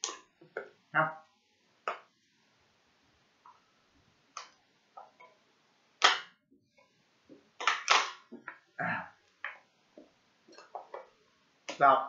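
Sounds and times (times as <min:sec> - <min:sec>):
plastic bottle clicks and crackles: 0:07.6 - 0:08.6.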